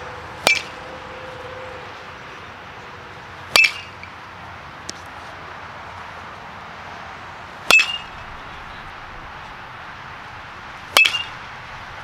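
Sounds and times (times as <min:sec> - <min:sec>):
baseball bat hitting ball: 0:00.4 - 0:00.8, 0:03.5 - 0:04.1, 0:07.6 - 0:08.6, 0:10.9 - 0:11.5.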